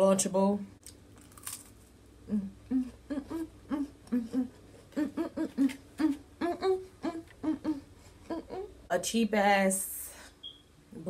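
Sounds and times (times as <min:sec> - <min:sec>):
woman humming a tune: 0:02.3 - 0:08.9.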